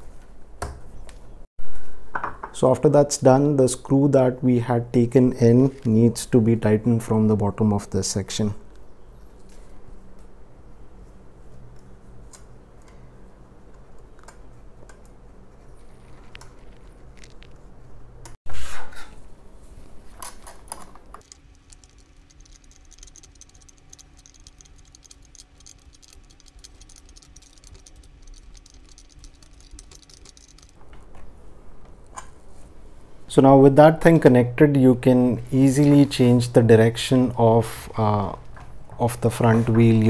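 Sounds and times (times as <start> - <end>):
nut and bolt clicking: 20.7 - 30.8.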